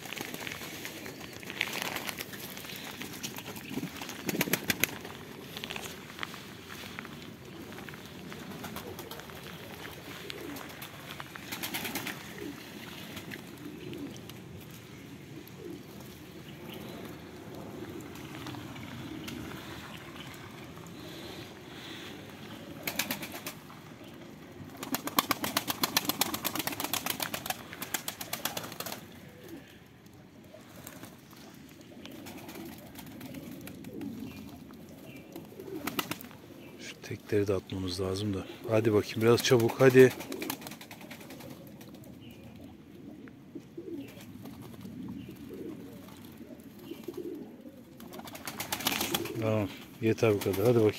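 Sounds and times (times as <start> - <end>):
rapid wing flapping: 0.0 - 5.6, 8.4 - 13.6, 22.7 - 23.7, 24.7 - 29.2, 35.6 - 36.4, 39.4 - 42.0, 48.0 - 49.4
pigeons cooing: 0.0 - 50.9.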